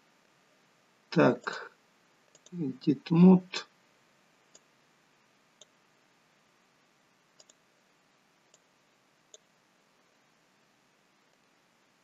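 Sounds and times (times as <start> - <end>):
computer mouse clicks: 2.3 - 2.6, 7.4 - 7.6, 8.5 - 8.7.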